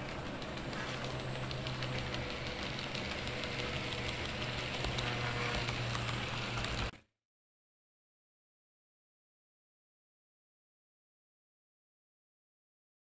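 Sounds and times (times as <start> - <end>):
low hum: 0.0 - 6.9
model train wheels rumbling on rail: 0.0 - 6.9.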